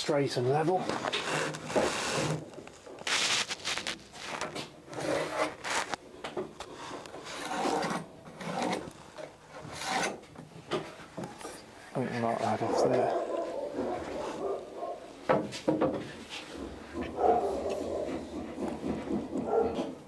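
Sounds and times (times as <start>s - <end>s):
pencil scraping on wood: 0.8s - 2.5s, 3.1s - 6.0s, 6.6s - 10.3s, 16.3s - 20.0s.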